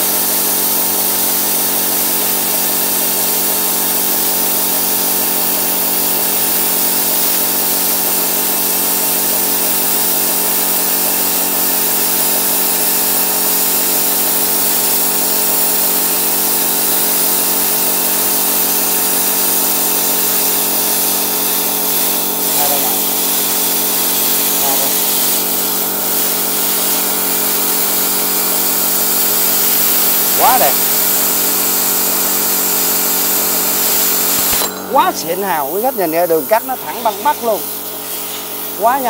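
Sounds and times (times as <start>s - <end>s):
plasma cutter hissing: 0.0s - 39.0s
even hum: 28.6s - 31.7s, 33.7s - 39.0s.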